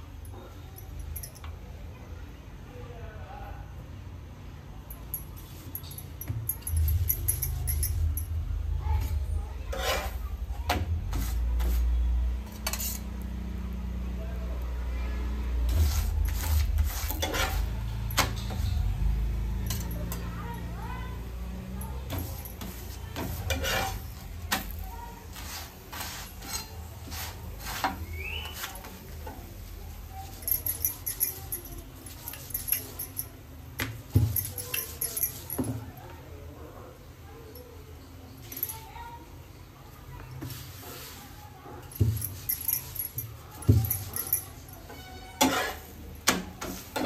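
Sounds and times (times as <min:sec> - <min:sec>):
metal spatula scraping griddle: 0:09.0 - 0:10.4, 0:11.1 - 0:13.2, 0:15.7 - 0:18.6, 0:22.1 - 0:29.3, 0:44.8 - 0:47.0.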